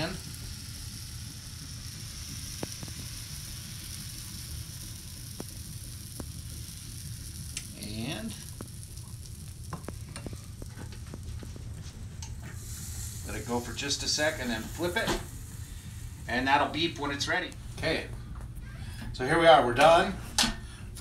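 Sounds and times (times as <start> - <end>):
batter sizzling in waffle maker: 0.0 - 21.0
small ticks and pops: 0.3 - 12.6.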